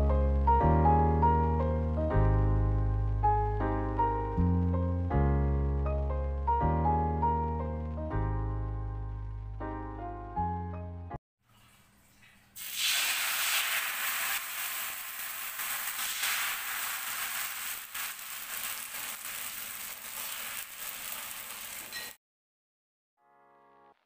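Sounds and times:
batter sizzling in a pan: 12.6 - 22.2.

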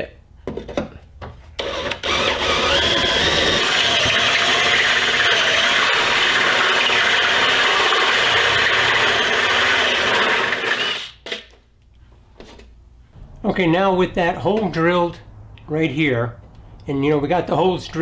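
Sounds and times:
drill cutting sheet metal: 1.6 - 11.4.

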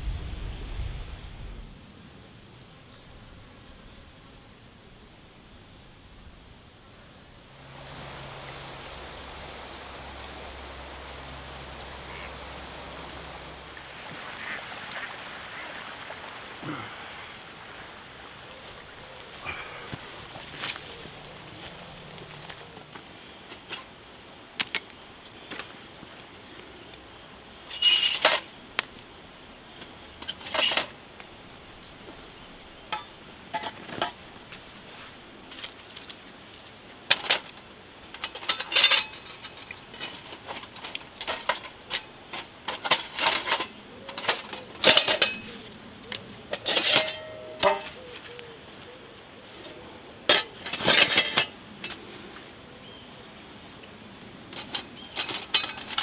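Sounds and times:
metal panels clinking and clattering: 37.1 - 45.6, 46.5 - 48.0, 50.3 - 52.0, 54.6 - 56.0
metal clanks ringing: 41.2 - 45.6, 46.6 - 48.0.

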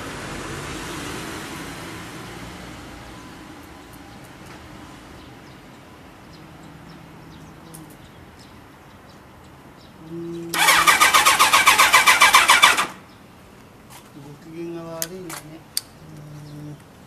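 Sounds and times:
engine cranking by starter: 10.5 - 13.0.

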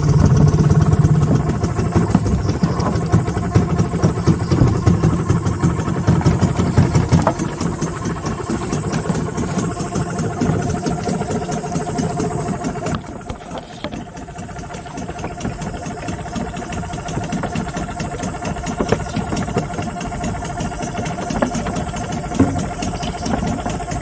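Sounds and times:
outboard motor running: 0.0 - 24.0.

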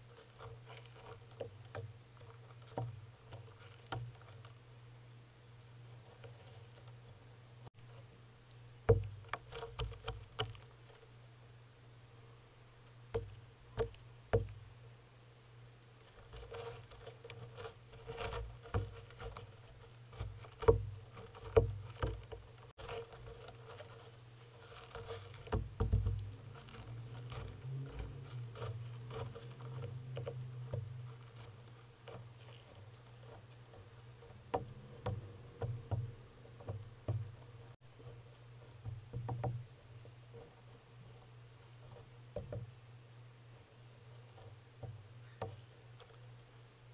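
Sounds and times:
gull pecking on wooden railing: 7.8 - 11.2, 12.8 - 14.7, 16.0 - 42.8, 44.0 - 46.5.

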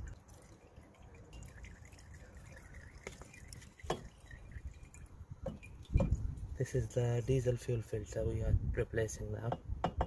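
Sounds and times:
fuel dripping: 0.0 - 7.0.

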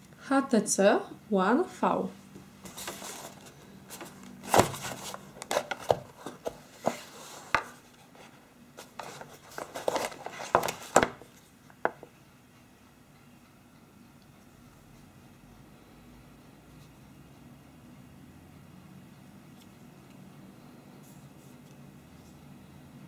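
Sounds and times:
box lid sliding off: 2.7 - 7.8.

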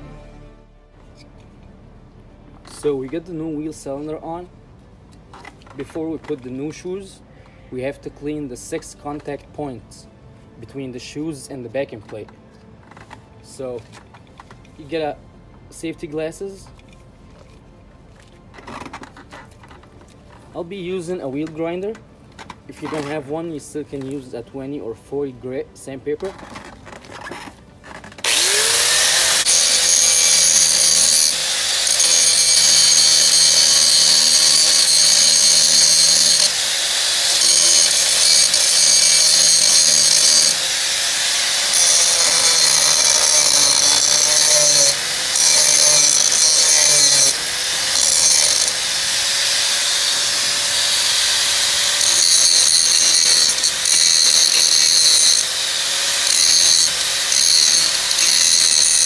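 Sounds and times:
angle grinder grinding metal: 26.2 - 59.0.

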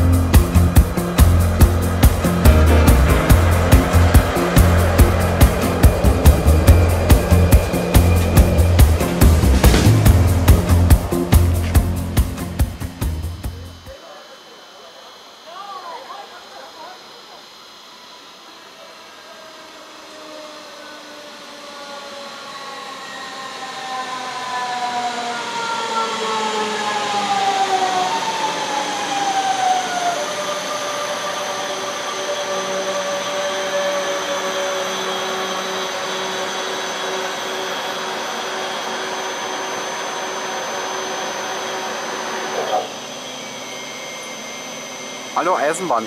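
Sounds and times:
electrical hum: 0.0 - 17.4
electric train motors whining: 0.0 - 46.0.

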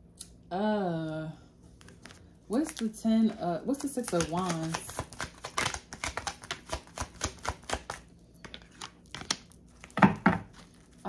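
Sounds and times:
cards being shuffled: 1.8 - 9.9.

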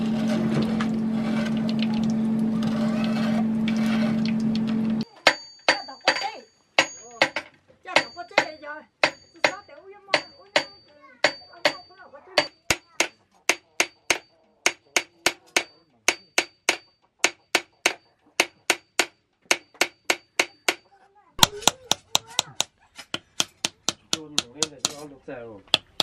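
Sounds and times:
hammer tapping on metal: 5.2 - 20.8, 21.4 - 25.0, 25.7 - 26.0.

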